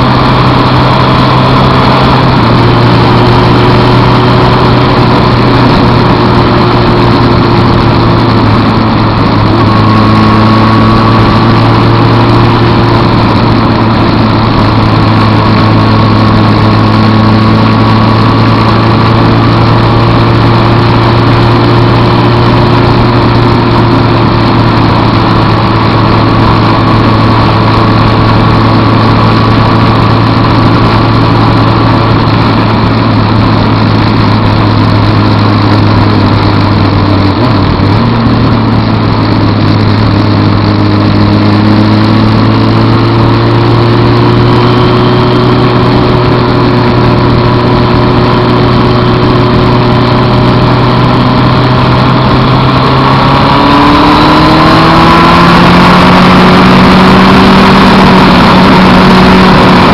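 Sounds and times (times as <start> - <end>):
motorcycle engine running: 0.0 - 59.9
rushing wind noise: 0.0 - 59.9.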